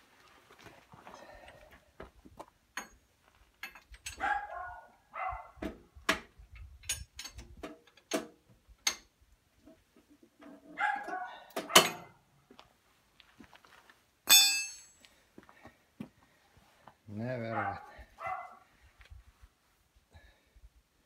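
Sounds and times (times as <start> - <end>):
wrench clanking on metal: 2.8 - 3.0, 3.6 - 4.3, 6.8 - 9.1, 11.6 - 12.1, 14.3 - 15.0.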